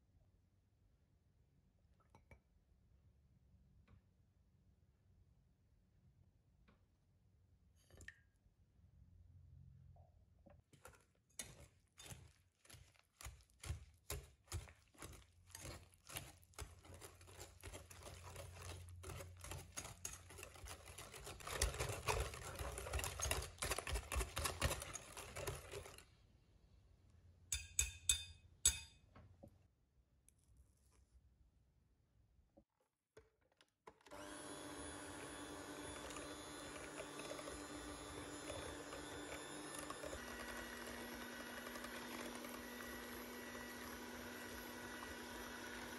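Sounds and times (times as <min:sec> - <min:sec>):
whisk beating in glass bowl: 0:10.8 - 0:26.0, 0:35.2 - 0:45.9
whisk tapping against bowl: 0:11.4 - 0:26.0, 0:27.5 - 0:28.9.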